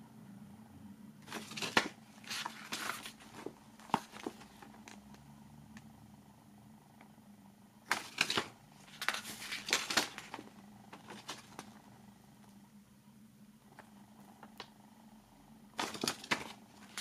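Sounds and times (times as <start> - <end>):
paper pages rustling: 1.2 - 5.0, 7.9 - 11.8, 15.8 - 17.0.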